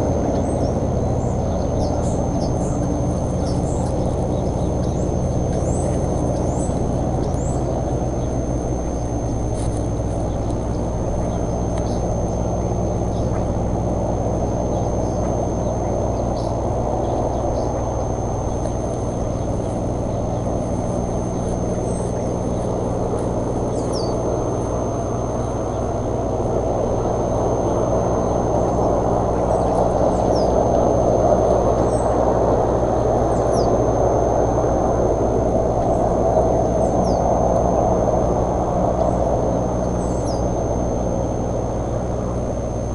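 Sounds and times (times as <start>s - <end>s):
electrical hum: 0.0s - 42.9s
low rumble: 0.0s - 42.9s
rushing outdoor noise: 0.0s - 42.9s
small birds chirping: 0.0s - 42.9s
thin high whine: 0.0s - 42.9s
faint ticks or rustles: 0.2s - 33.8s.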